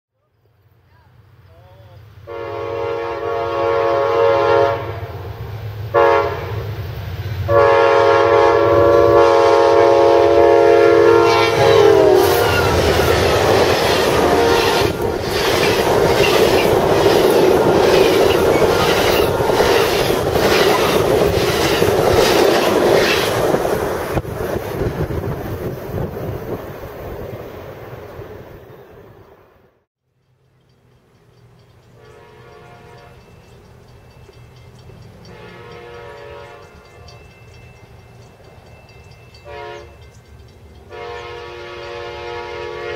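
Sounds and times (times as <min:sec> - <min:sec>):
locomotive air horn blasts: 0:02.2 - 0:05.3, 0:05.9 - 0:06.7, 0:07.5 - 0:21.1, 0:32.0 - 0:33.3, 0:35.2 - 0:37.0, 0:39.4 - 0:39.9, 0:40.9 - 0:42.9
train wheels clicking over rail joints: 0:11.3 - 0:26.7, 0:30.1 - 0:41.2.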